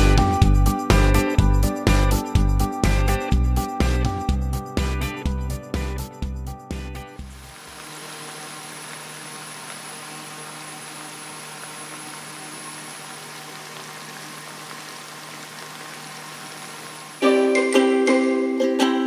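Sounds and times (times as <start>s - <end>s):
low steady hum: 7.2s - 17.2s
squid sizzling in a frying pan: 7.3s - 17.2s.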